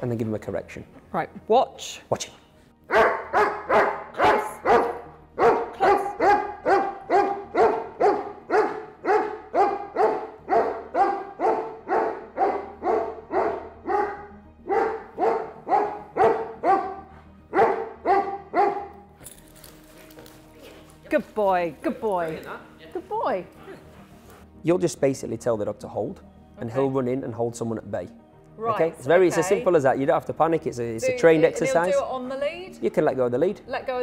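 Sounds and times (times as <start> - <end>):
dog barking: 2.9 - 19.0.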